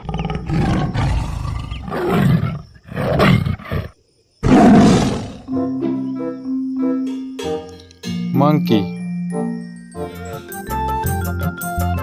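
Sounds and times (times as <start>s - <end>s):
tiger roaring and growling: 0.0s - 5.5s.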